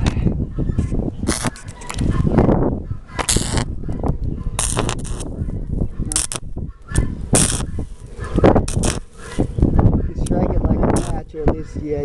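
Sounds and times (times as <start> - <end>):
welding arc crackling: 1.3 - 1.7, 3.2 - 3.7, 4.6 - 5.4, 6.1 - 9.5, 10.9 - 11.3.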